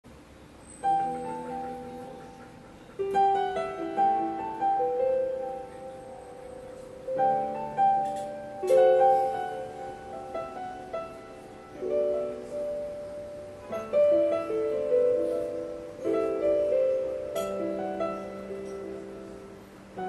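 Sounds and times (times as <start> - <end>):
solo piano melody: 0.1 - 20.0.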